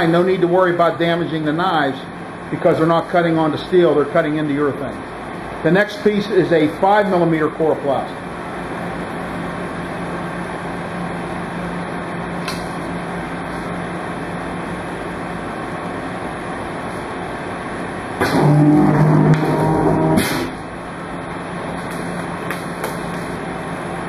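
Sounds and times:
die cutter humming: 0:18.1 - 0:21.0.

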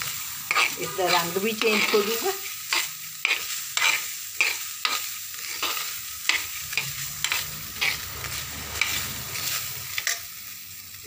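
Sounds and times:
rasp of dry grains: 0:03.2 - 0:10.2
wooden spatula scraping pan: 0:03.2 - 0:10.3.

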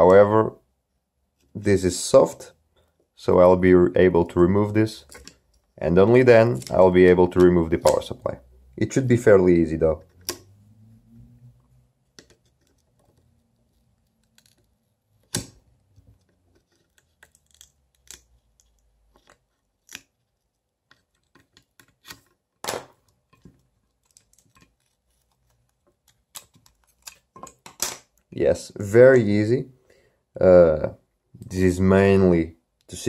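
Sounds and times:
tweezers clicking and scraping: 0:16.2 - 0:22.3.

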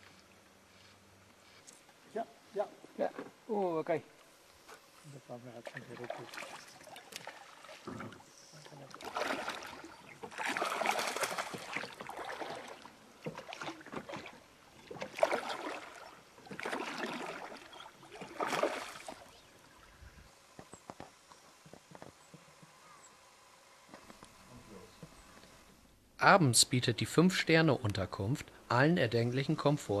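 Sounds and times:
water splashing against boat: 0:05.6 - 0:19.4.

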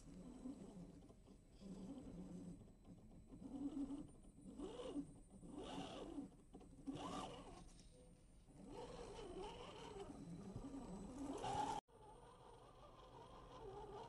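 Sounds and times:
electric motor and gears whining: 0:08.6 - 0:11.8.

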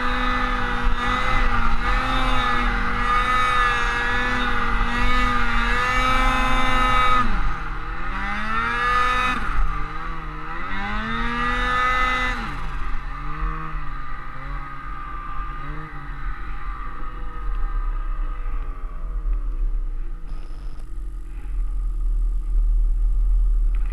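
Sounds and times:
snowmobile engine revving: 0:00.0 - 0:18.2.

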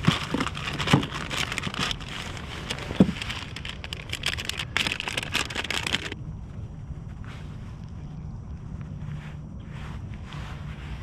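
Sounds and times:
rummaging through plastic tackle tray: 0:00.0 - 0:06.2
low steady background noise: 0:00.0 - 0:11.0.

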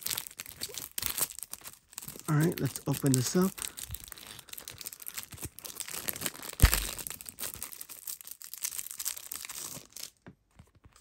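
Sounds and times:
plastic wrapping crinkling: 0:00.0 - 0:11.0
loud plastic crack: 0:05.9 - 0:07.4.

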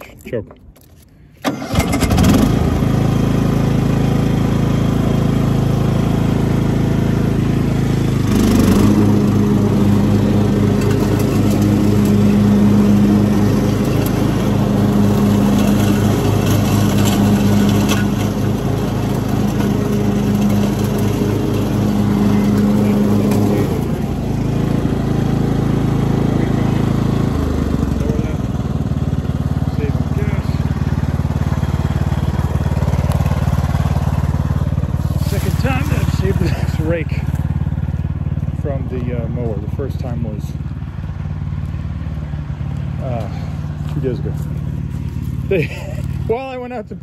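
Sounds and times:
riding lawn mower engine: 0:00.0 - 0:47.0.

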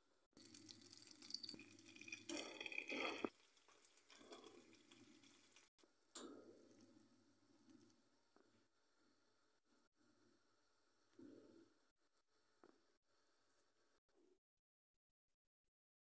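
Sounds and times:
liquid splashing into soup: 0:00.4 - 0:05.7
soup bubbling in a pot: 0:00.4 - 0:07.9
wooden spoon stirring: 0:00.5 - 0:05.7.

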